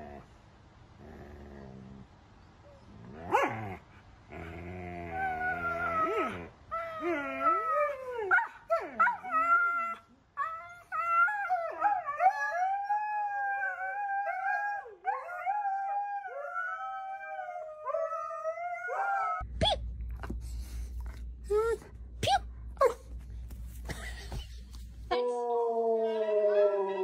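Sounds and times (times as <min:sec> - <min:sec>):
huskies howling and yowling: 0:04.8 - 0:19.4.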